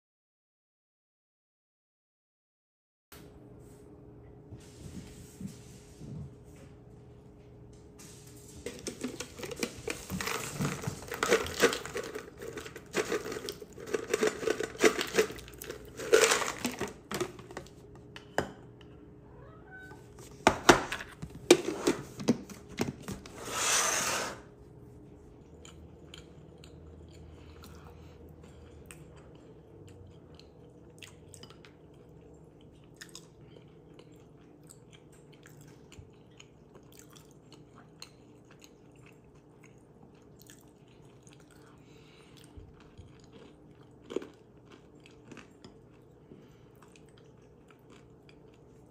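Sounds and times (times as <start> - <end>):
nuts rattling and clattering: 10.0 - 17.5.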